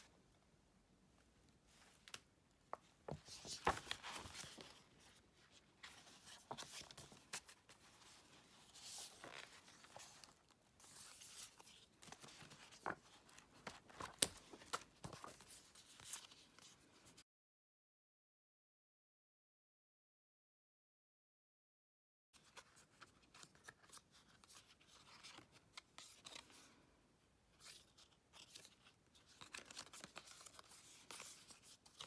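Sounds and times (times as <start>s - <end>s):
paper rustling: 1.7s - 17.2s, 27.6s - 32.0s.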